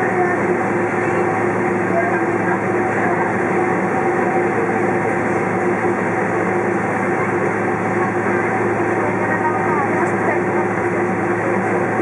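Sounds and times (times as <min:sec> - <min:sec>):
jet engines humming: 0:00.0 - 0:12.0.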